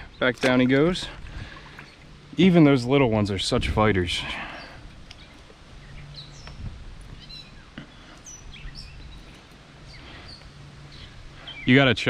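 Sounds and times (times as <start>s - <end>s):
birds chirping and whistling: 4.2s - 12.0s.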